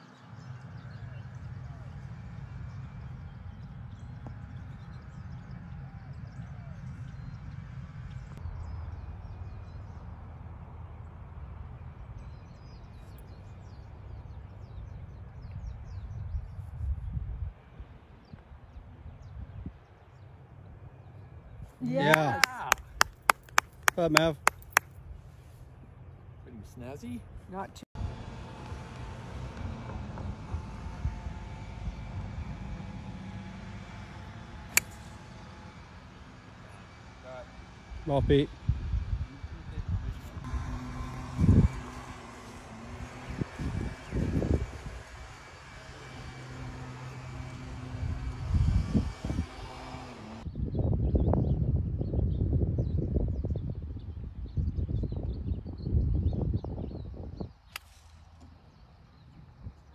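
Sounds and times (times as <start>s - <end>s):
birds chirping: 0.0s - 27.8s, 28.8s - 59.9s
low outdoor rumble: 0.0s - 59.9s
wind buffeting microphone: 0.4s - 20.2s, 37.3s - 59.9s.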